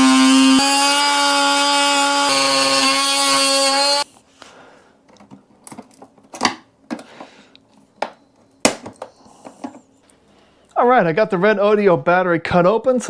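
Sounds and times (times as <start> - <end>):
oscillating tool buzzing into plastic: 0.0 - 4.0.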